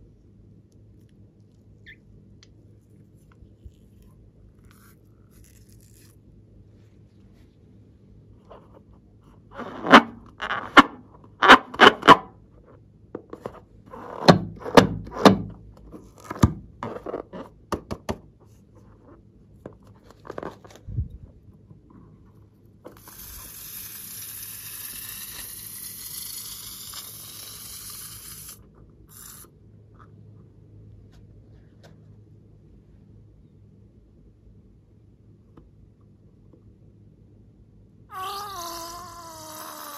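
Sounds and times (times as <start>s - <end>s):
rubbery balloon squeaks: 4.6s - 6.2s, 38.1s - 39.9s
air hissing out of balloon: 23.0s - 29.5s.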